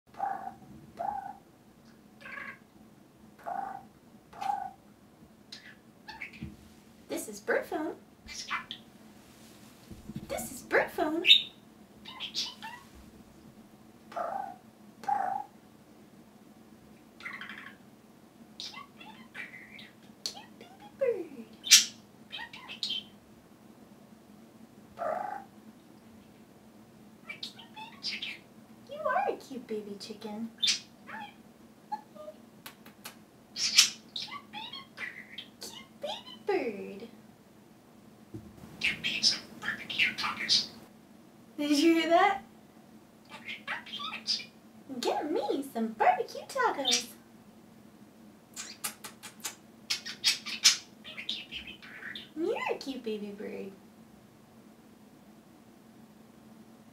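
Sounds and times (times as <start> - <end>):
budgerigar calls: 8.3 - 8.8, 11.3 - 12.8, 17.2 - 17.8, 18.6 - 20.0, 21.6 - 23.1, 27.3 - 28.4, 30.6 - 31.4, 33.6 - 36.4, 38.8 - 40.8, 43.3 - 44.6, 49.9 - 52.4.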